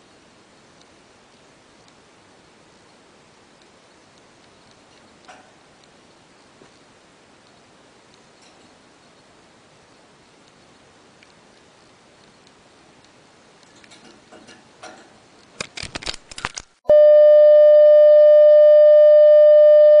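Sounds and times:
steady electronic test tone: 16.9s - 20.0s.

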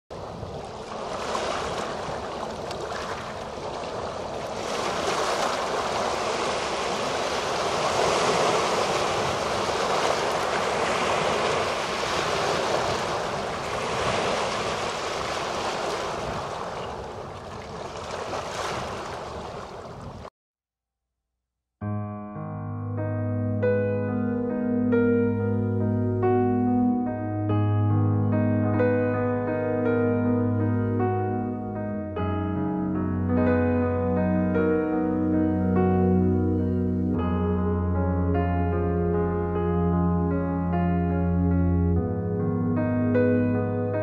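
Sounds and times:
small waves washing over pebbles: 0.1s - 20.3s.

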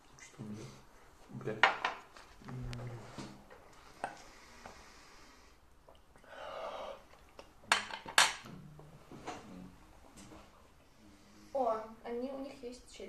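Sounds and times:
long breath out: 6.2s - 7.0s.

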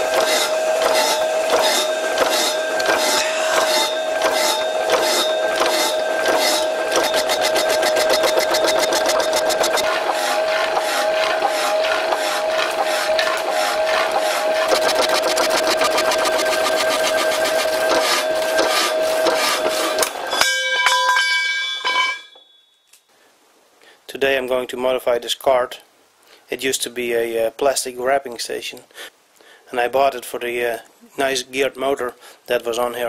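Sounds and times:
power hacksaw cutting steel: 0.0s - 20.3s
ringing metallic tones: 2.4s - 9.8s, 20.2s - 23.1s.

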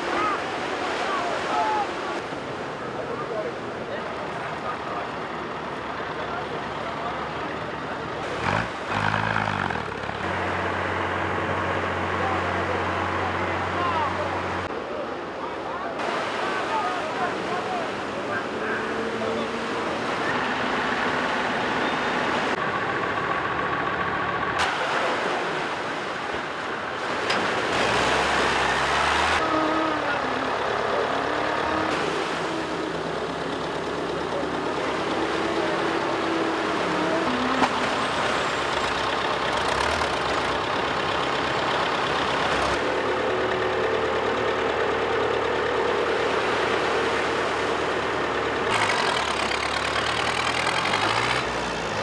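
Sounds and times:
surf splashing: 0.0s - 7.0s, 13.8s - 22.6s, 24.6s - 43.0s
boat outboard motors running: 0.0s - 52.0s
vehicle engines running: 0.0s - 52.0s.

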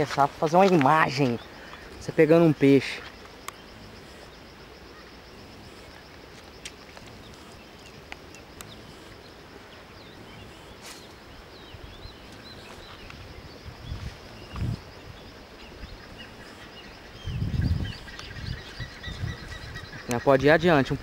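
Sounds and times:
steady background hiss: 0.0s - 21.0s
small bird chirps: 7.2s - 20.6s
faint clicks: 8.1s - 8.8s.

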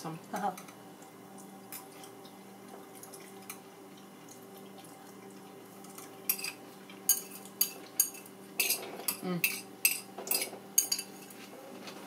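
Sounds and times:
fork clinking against glass bowl: 6.3s - 11.3s.

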